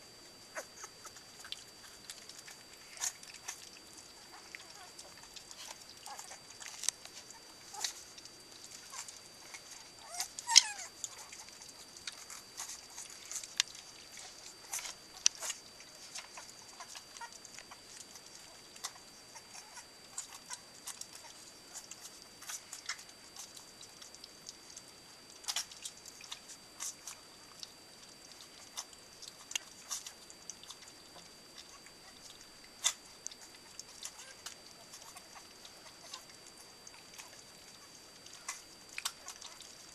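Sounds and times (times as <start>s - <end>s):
puppies smacking and lapping: 0.2s - 39.9s
puppy squeak: 10.0s - 11.3s.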